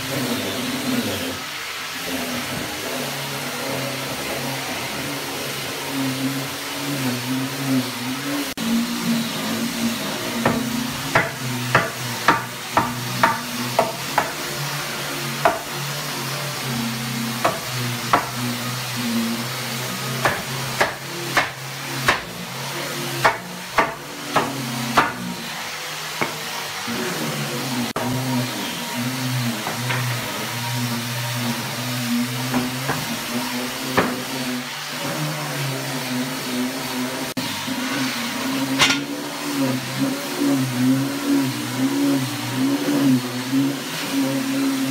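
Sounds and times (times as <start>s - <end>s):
hammer knocking on wood: 10.4s - 14.4s, 15.4s - 15.7s, 23.2s - 25.2s.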